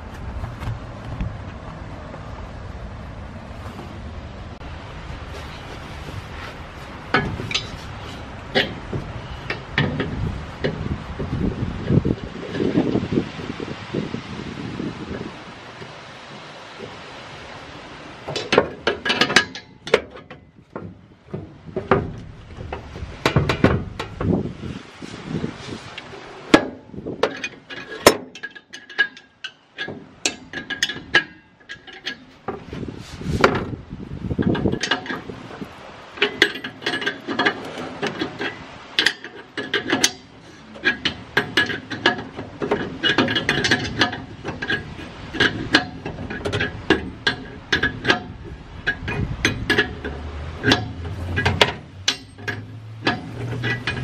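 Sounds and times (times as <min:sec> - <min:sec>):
wrenches clicking against metal fittings: 0:27.2 - 0:32.7, 0:34.4 - 0:54.0.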